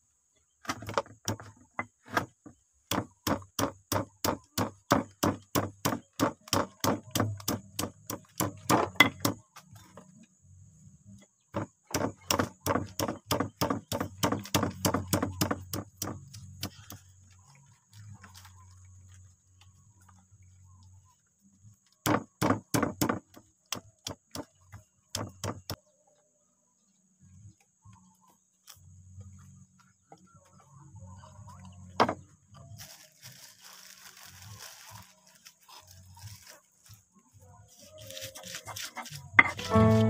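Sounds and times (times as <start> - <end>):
stone pestle knocking in mortar: 2.9 - 9.4, 11.6 - 16.7, 22.0 - 23.2.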